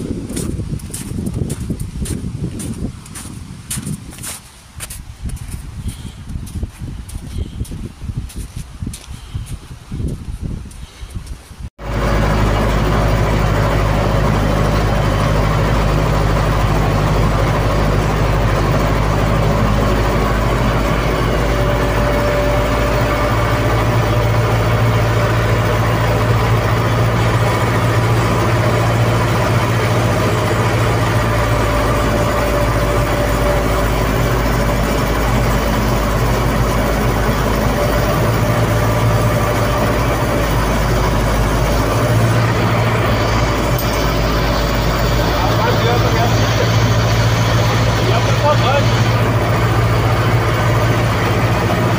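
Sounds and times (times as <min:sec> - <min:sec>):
vehicle engine running from cab: 0:11.8 - 0:51.9.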